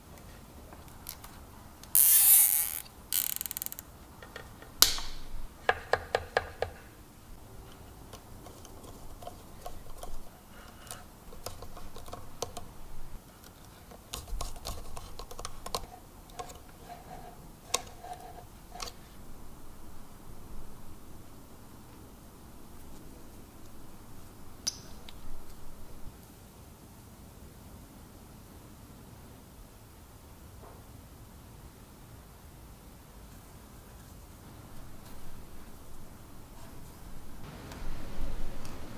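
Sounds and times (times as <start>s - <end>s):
cable rustling scrape: 13.4s - 19.2s.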